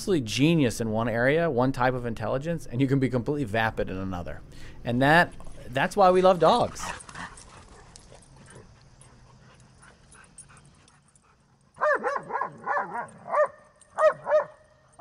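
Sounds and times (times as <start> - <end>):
dog yelping: 11.8 - 14.6.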